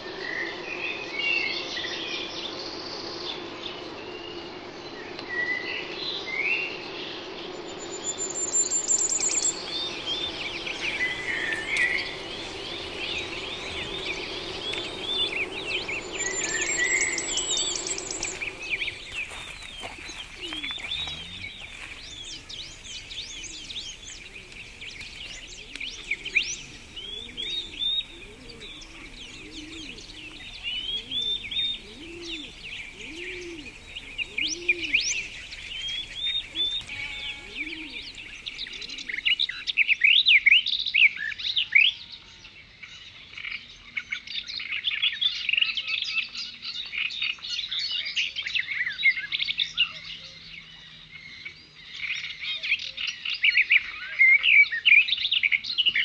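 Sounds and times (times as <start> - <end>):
small birds chirping: 7.6 - 40.4.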